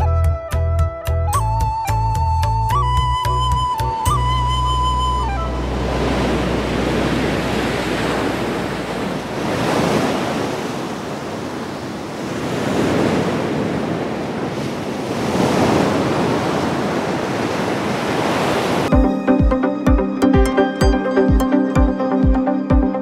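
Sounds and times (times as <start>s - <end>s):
ocean waves breaking: 4.2s - 19.6s.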